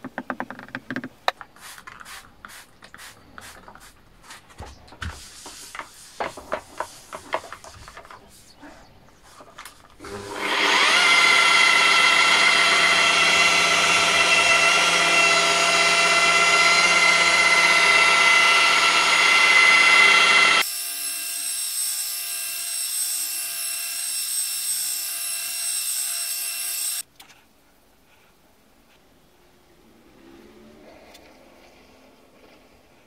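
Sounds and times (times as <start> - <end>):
electric polisher motor whine: 10.0 - 27.0.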